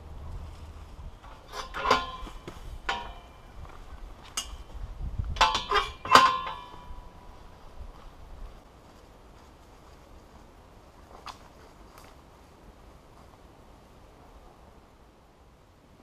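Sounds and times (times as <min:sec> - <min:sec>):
metal gate clanking: 0:01.2 - 0:03.6, 0:05.4 - 0:07.4.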